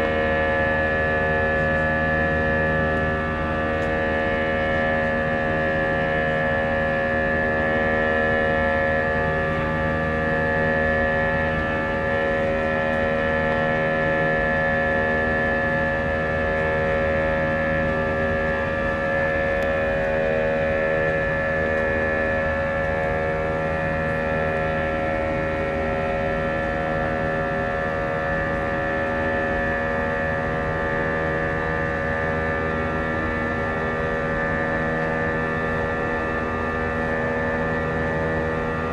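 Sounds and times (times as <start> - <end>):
jet engine drone in cabin: 0.0 - 38.9.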